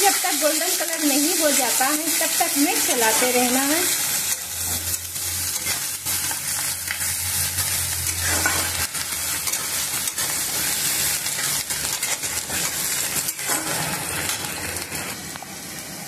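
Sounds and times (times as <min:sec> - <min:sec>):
onions sizzling in hot oil: 0:00.0 - 0:16.0
metal spatula scraping pan: 0:04.3 - 0:14.5.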